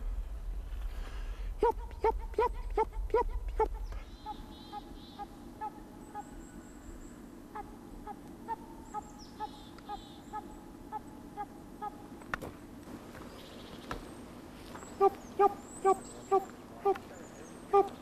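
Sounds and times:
hound yelping barks: 17.7 - 18.0.

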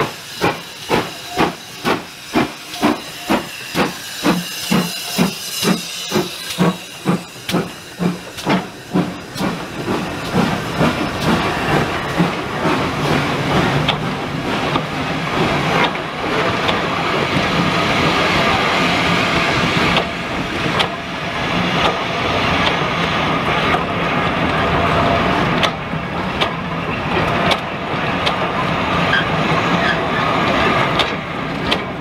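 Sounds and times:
steam locomotive hissing exhaust beats: 0.0 - 32.0.

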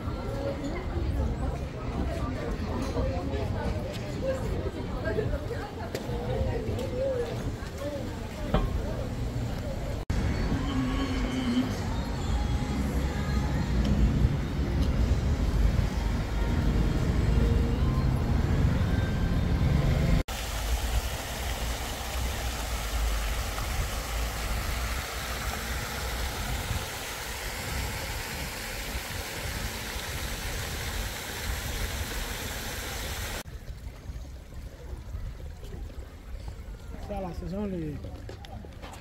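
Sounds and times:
road traffic noise: 5.9 - 33.4.

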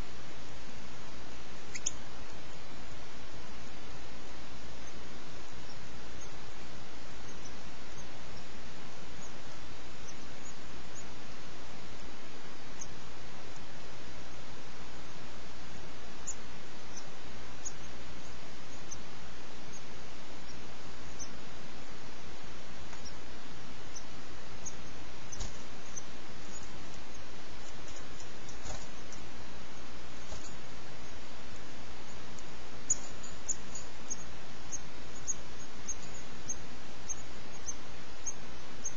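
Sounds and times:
nestlings begging peeps: 0.0 - 38.9
steady hiss: 0.0 - 38.9.

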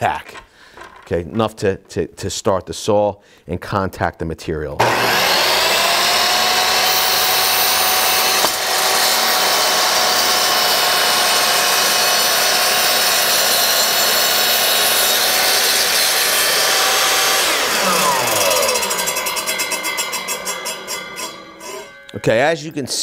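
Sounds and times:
miter saw cutting wood: 4.8 - 22.2.

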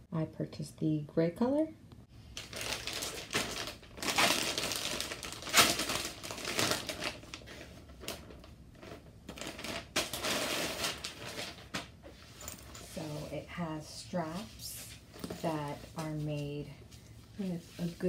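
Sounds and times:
plastic bag crinkling: 2.3 - 11.9.

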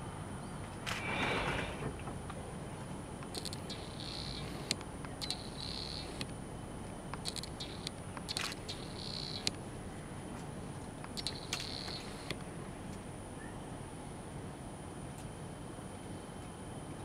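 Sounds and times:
background hiss: 0.0 - 14.2
insects chirping: 0.0 - 15.0
sharp clicks: 3.2 - 9.6, 11.0 - 12.5.

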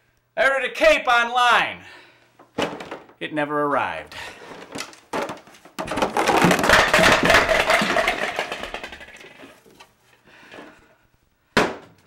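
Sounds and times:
plastic crate rattling: 4.5 - 9.6.

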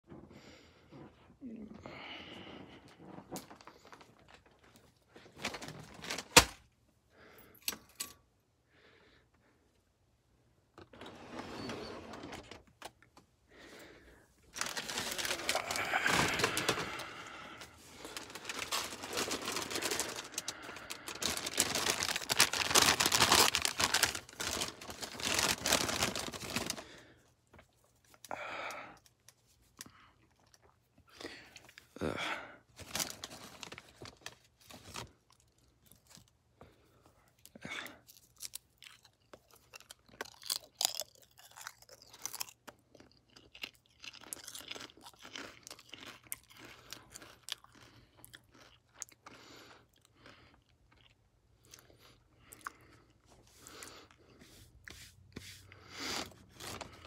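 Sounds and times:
dense crinkling and rustling: 2.5 - 6.7, 10.7 - 13.4, 14.4 - 28.2, 32.7 - 36.3, 56.1 - 57.0.

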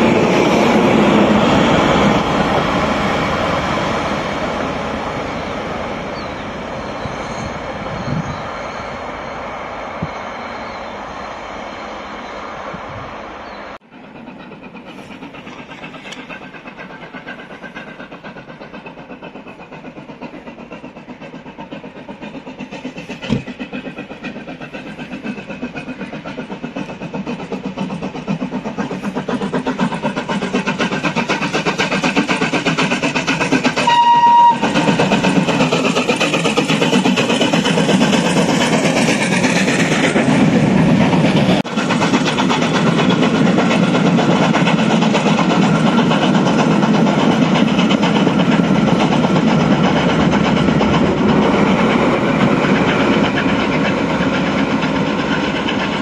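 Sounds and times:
steam locomotive passing: 0.0 - 56.0
steam whistle toot: 33.8 - 35.0.

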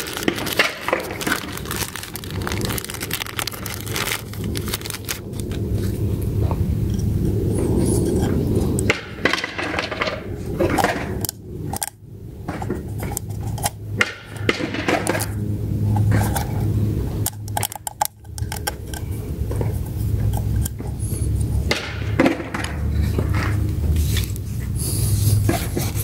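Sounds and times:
plastic clicks and rattles: 0.0 - 5.6, 8.2 - 16.6, 17.2 - 20.9
low steady hum: 0.0 - 26.0.

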